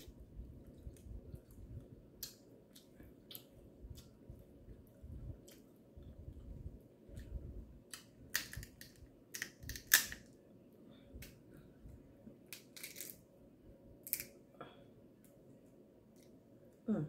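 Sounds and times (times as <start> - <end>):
crab shell cracking: 7.9 - 10.3, 14.0 - 14.3.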